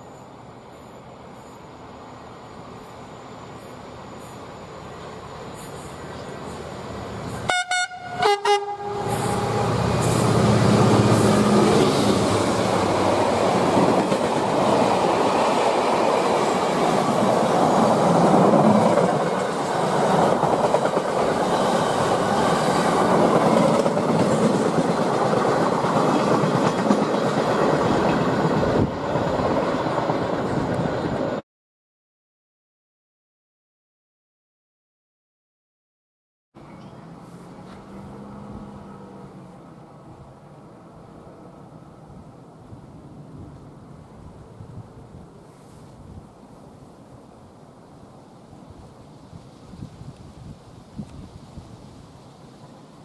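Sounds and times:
locomotive horn blasts: 7.5 - 9.8.

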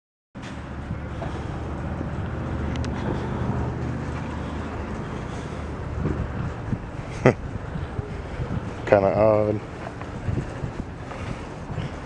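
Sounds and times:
vehicle engine running: 0.4 - 8.9.

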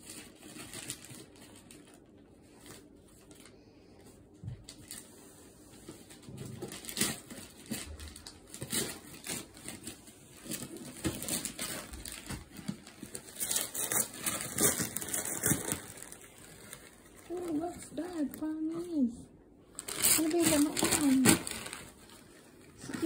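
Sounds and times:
wrapping paper crinkling and tearing: 0.0 - 4.0, 4.6 - 19.1, 19.7 - 23.0.

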